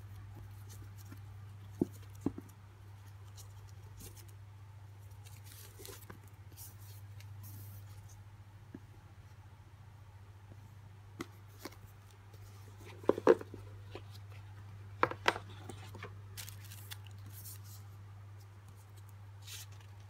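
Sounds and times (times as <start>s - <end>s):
paper rustling: 15.3s - 20.0s.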